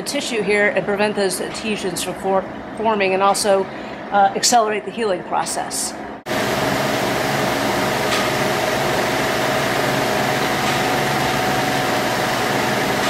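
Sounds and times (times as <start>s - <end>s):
machine rushing air and hum: 6.2s - 13.0s.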